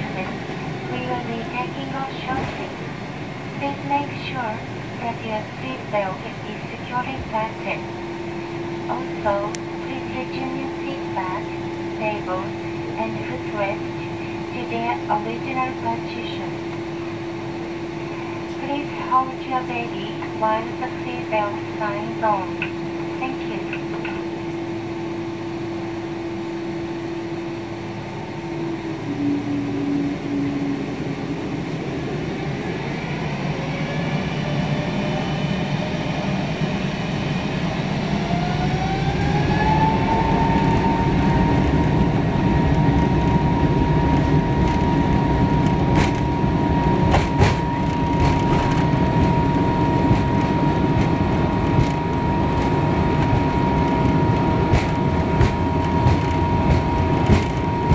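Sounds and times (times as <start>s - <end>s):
jet engines spooling up: 0.0s - 57.9s
wheels rumbling on runway: 27.5s - 57.9s.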